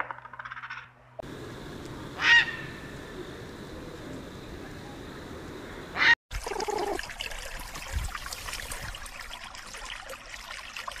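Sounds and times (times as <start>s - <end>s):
water trickling: 6.3s - 11.0s.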